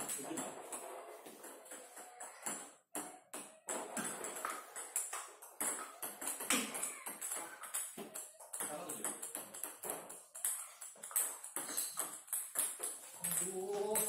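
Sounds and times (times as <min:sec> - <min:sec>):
ball bouncing on table: 0:00.0 - 0:14.0.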